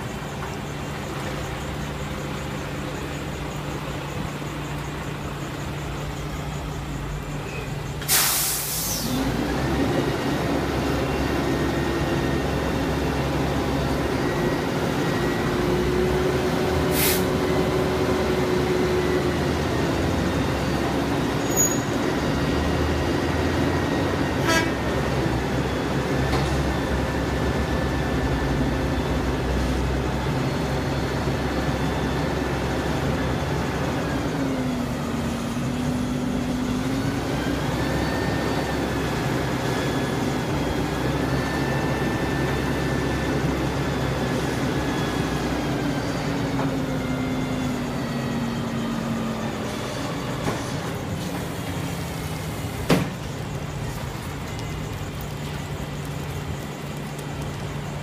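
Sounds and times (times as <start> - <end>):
diesel truck engine: 0.0 - 58.0
air release hiss: 8.0 - 9.2, 16.9 - 17.3.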